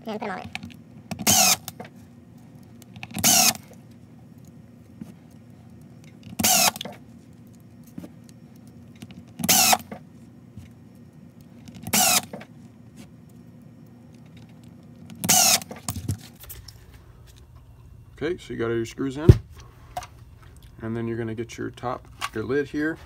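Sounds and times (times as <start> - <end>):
cordless drill whirring: 1.2 - 1.8, 3.2 - 3.7, 6.4 - 6.9, 9.4 - 9.9, 11.9 - 12.4, 15.2 - 15.7.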